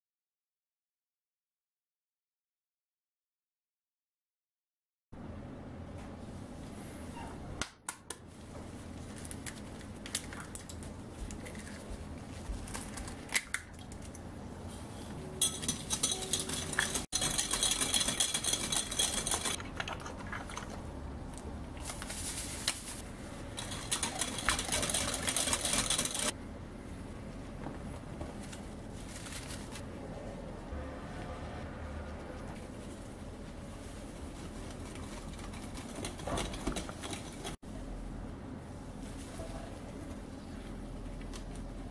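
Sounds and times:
whisking against glass bowl: 15.4 - 20.7, 23.5 - 26.3, 34.6 - 37.6.

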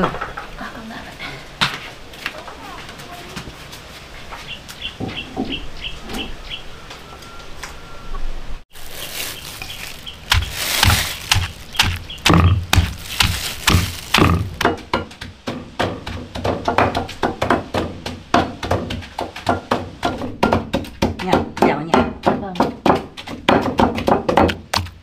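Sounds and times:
wooden pestles pounding in stone mortars: 9.6 - 25.0.

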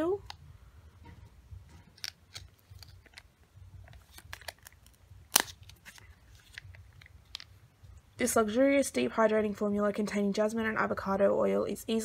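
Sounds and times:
sachet crinkling and clicking: 1.9 - 7.6.

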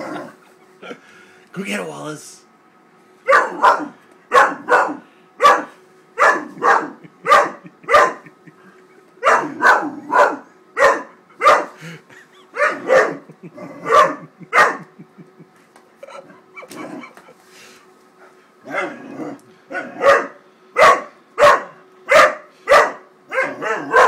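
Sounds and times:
puppy barking: 3.2 - 8.3, 9.2 - 11.8, 12.6 - 13.2, 13.8 - 14.9, 19.7 - 24.0.

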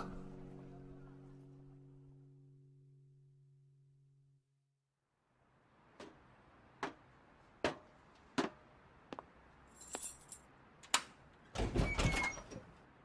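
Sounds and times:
keys jingling: 9.7 - 10.5.

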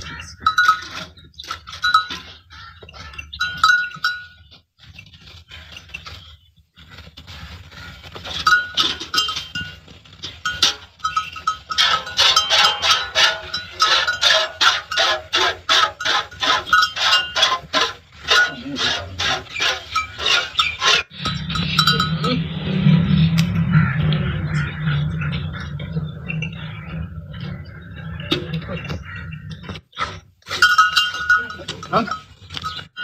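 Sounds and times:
animal neck bells jingling: 0.1 - 5.0, 8.3 - 22.6, 30.0 - 33.0.

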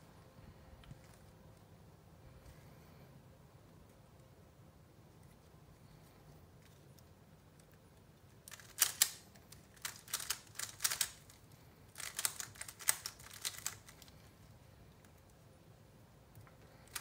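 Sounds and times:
puzzle cube layers clicking: 8.5 - 11.4, 12.0 - 14.1.

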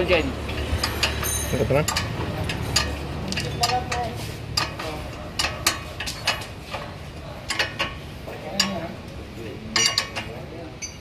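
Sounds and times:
wrench clinking on nut: 0.5 - 6.4, 9.8 - 11.0.

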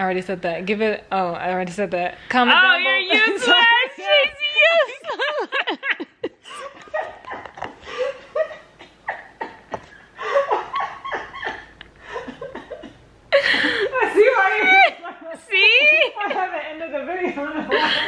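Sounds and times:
woman laughing: 3.1 - 18.0.

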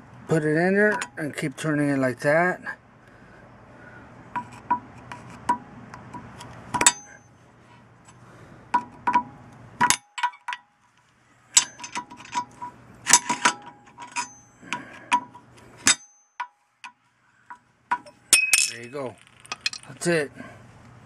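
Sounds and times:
screwdriver clinking on metal cap: 11.6 - 16.5, 17.9 - 20.0.

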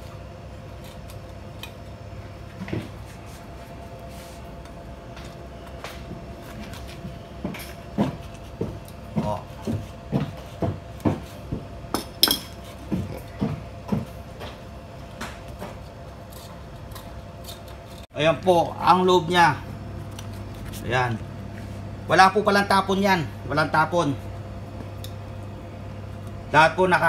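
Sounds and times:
knife chopping on cutting board: 8.0 - 11.7.

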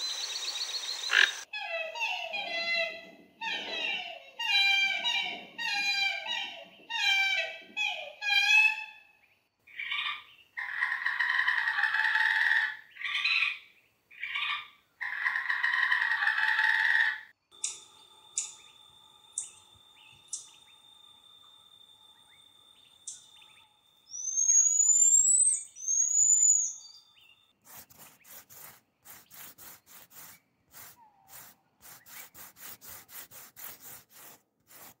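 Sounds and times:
marmoset chirps: 17.5 - 20.8, 23.0 - 27.4
marmoset gliding whistles: 24.1 - 27.0.

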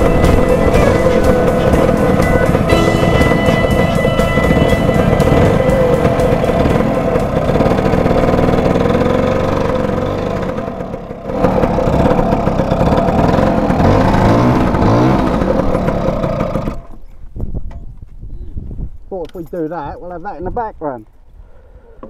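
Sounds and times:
scooter engine running: 0.0 - 17.1.

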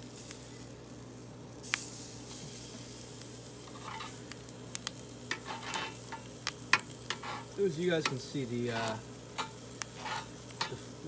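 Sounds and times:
meat sizzling on a grill: 0.0 - 11.0
metal tongs clicking on grate: 8.8 - 10.9.

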